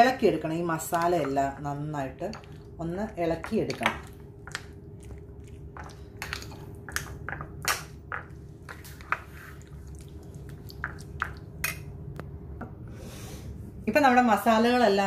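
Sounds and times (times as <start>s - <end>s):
steady low hum: 0.0s - 15.0s
spoon squelching in marinade: 3.4s - 7.4s, 8.2s - 11.7s.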